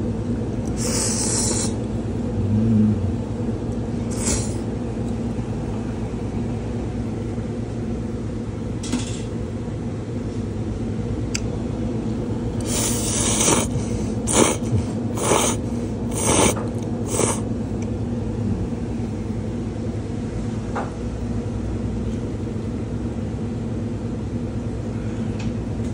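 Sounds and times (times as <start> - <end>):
low machine hum: 0.0 - 25.9
short hissing bursts: 0.8 - 1.8, 4.1 - 4.6, 12.6 - 13.7, 14.3 - 14.6, 15.2 - 17.4.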